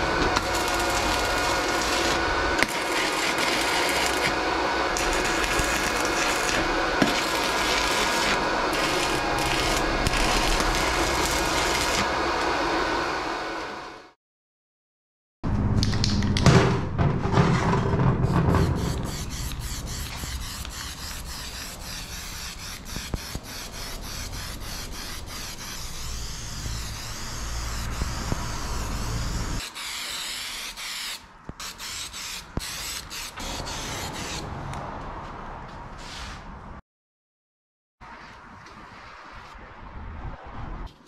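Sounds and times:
spray paint can hissing: 0:18.7 - 0:29.9.

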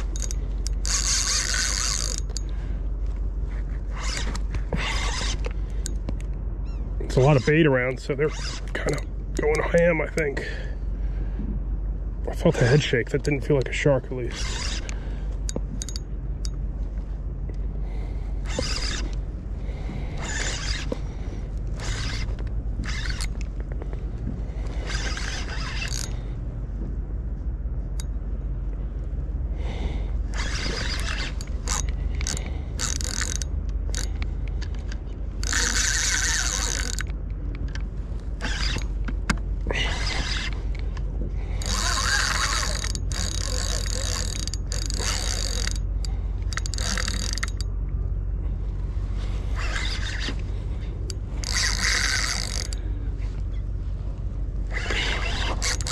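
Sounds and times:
fishing reel gears rattling: 0:00.0 - 0:02.7, 0:03.9 - 0:06.2, 0:12.6 - 0:16.6, 0:18.0 - 0:23.7, 0:24.6 - 0:26.3, 0:30.3 - 0:37.8, 0:38.4 - 0:47.8, 0:49.4 - 0:53.6, 0:54.7 - 0:55.9
steady low rumble: 0:00.0 - 0:55.9.

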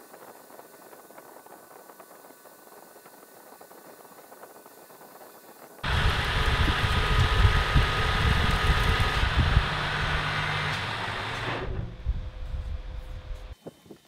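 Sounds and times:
metal lathe running: 0:05.8 - 0:13.5.

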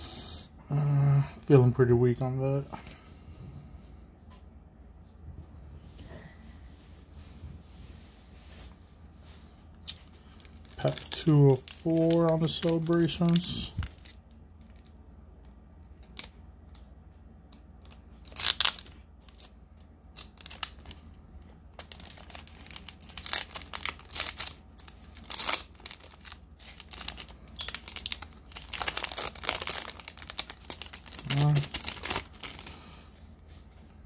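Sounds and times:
foil wrapper crinkling and tearing: 0:09.8 - 0:15.0, 0:15.9 - 0:16.8, 0:17.8 - 0:33.0.

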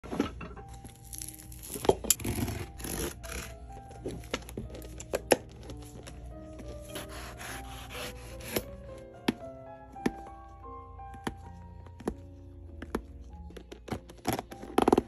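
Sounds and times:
background music with held notes: 0:00.0 - 0:15.0
tools scraping leather sole: 0:02.0 - 0:03.6, 0:06.6 - 0:08.7.

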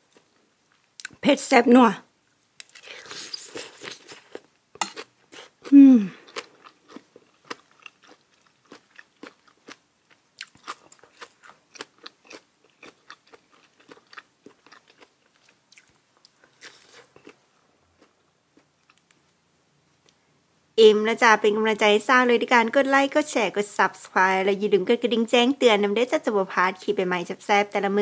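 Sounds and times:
person chewing crunchy food: 0:02.6 - 0:19.2.

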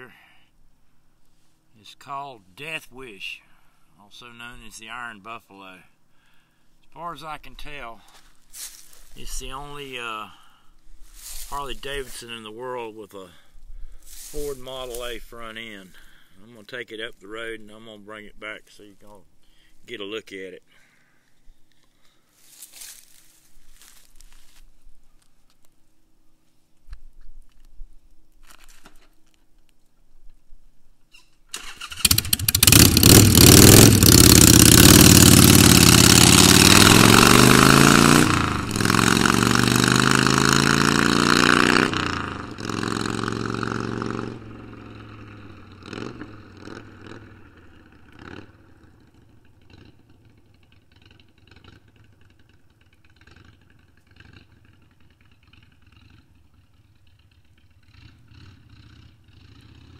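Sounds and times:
motorcycle engine starting and revving: 0:31.4 - 0:59.9.

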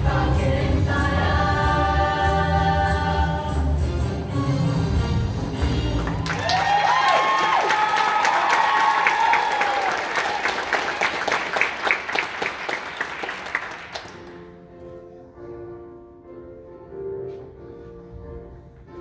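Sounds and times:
audience applauding and cheering: 0:05.6 - 0:14.3.

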